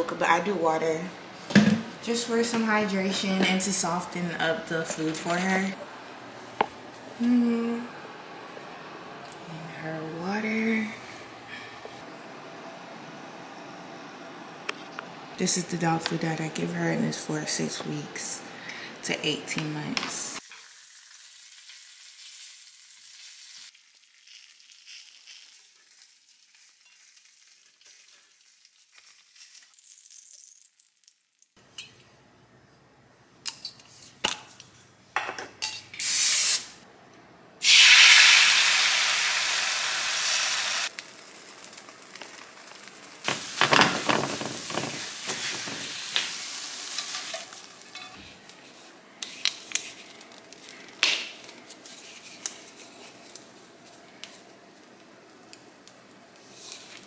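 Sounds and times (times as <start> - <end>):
bacon sizzling in a pan: 20.4 - 31.6, 37.6 - 48.1
eggs crackling and scraping: 20.5 - 31.6, 40.9 - 54.6
loud sudden sizzle: 37.6 - 47.6
utensils clinking against pan: 46.9 - 48.3.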